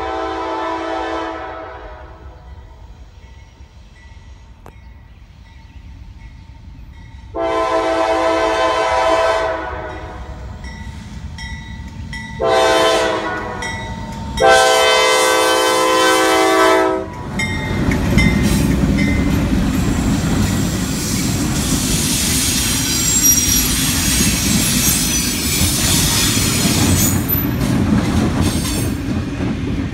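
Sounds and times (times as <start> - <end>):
locomotive air horn blast: 0.0 - 2.4, 7.3 - 10.4, 12.4 - 13.8, 14.4 - 17.2
faint high wheel squeal: 19.9 - 27.4.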